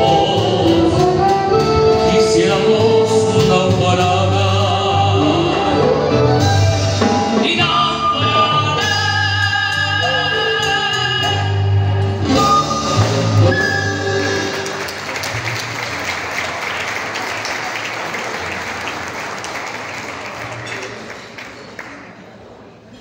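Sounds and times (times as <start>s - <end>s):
folk ensemble with singing: 0.0s - 14.9s
flute notes with vibrato: 8.1s - 14.8s
audience applause: 13.9s - 22.4s.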